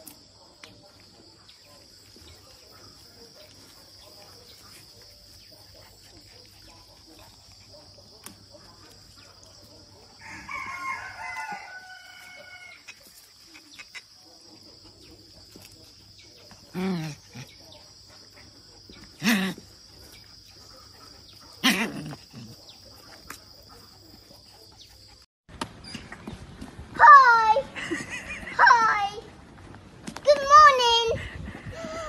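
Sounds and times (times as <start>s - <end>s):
rooster crowing: 10.2s - 12.9s.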